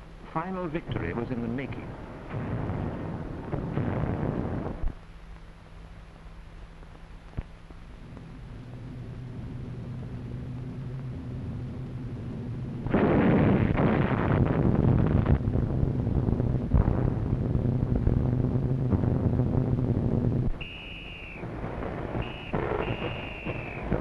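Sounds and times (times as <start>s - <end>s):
aircraft engines droning: 0.0s - 12.9s, 15.4s - 24.0s
bomb explosions: 0.8s - 5.0s, 8.1s - 24.0s
factory din: 16.8s - 24.0s.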